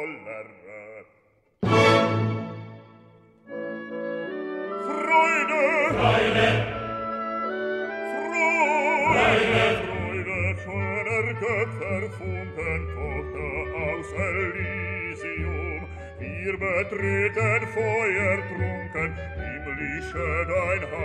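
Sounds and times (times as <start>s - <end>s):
operatic singer with vibrato: 4.8s - 7.0s, 8.1s - 21.0s
sustained accompanying notes: 5.2s - 7.5s, 8.3s - 12.2s.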